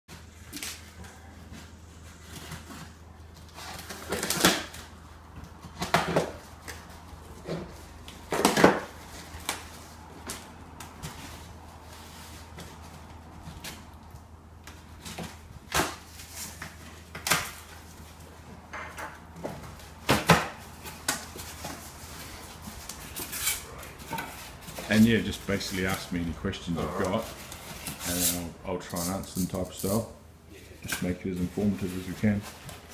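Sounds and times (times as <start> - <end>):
packing tape ripping off cardboard: 2.2 - 5.0
cardboard rustling: 19.4 - 29.2.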